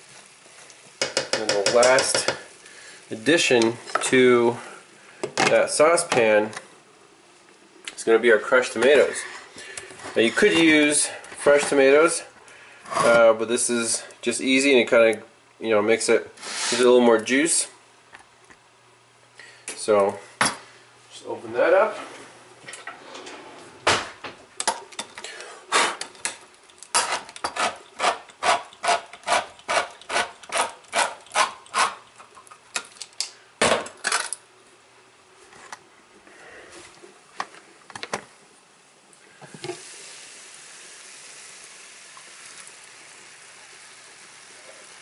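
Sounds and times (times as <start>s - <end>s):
vegetables sizzling in a pan: 0.0s - 5.2s, 39.2s - 45.0s.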